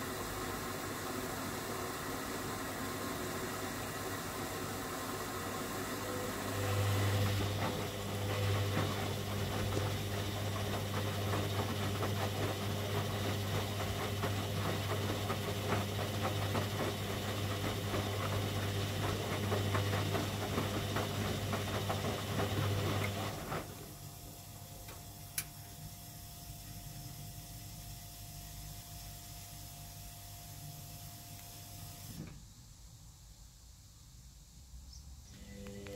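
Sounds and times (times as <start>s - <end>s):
washing machine motor humming: 0.0s - 32.2s
laundry sloshing in drum: 6.3s - 23.8s.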